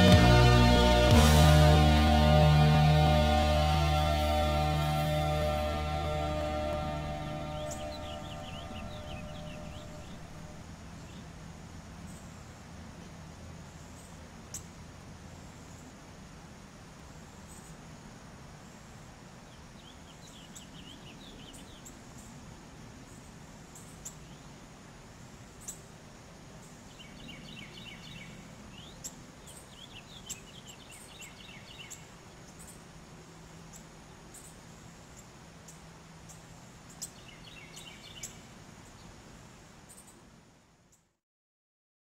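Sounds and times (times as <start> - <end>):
small birds chirping: 0.0 - 11.3, 23.0 - 24.6, 26.6 - 32.9, 33.5 - 40.3
low steady hum: 0.0 - 18.6.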